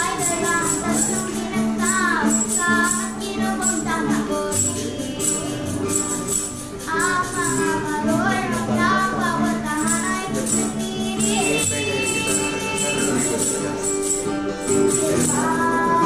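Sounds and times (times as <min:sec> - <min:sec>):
children singing a carol: 0:00.0 - 0:14.1, 0:14.7 - 0:16.0
acoustic guitar: 0:00.0 - 0:16.0
tambourine shaking: 0:00.0 - 0:16.0.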